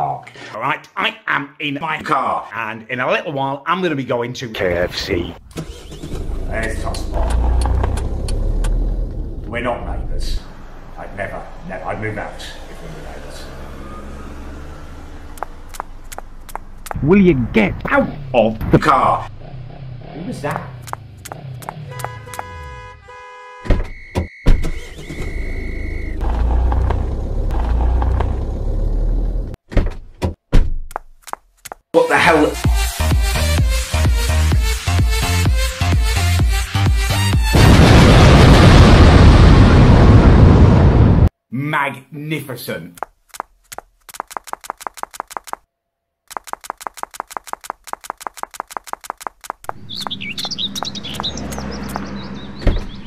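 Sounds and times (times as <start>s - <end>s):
car engine starting and rumbling: 5.0s - 23.0s, 23.7s - 30.2s, 49.6s - 53.0s
rapid footsteps: 15.4s - 17.0s, 30.9s - 31.8s, 43.0s - 45.6s, 46.3s - 52.1s
birds chirping: 49.6s - 53.0s
car door thumps: 52.6s - 53.0s.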